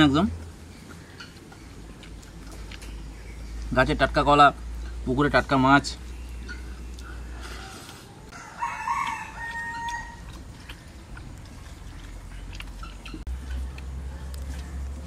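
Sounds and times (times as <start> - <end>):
rooster crowing: 7.5 - 10.2.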